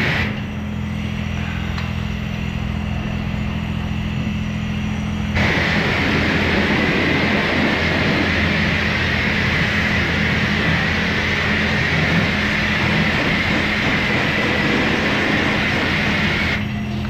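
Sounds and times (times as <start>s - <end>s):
pressure washer spraying: 0.0s - 0.5s, 5.3s - 16.7s.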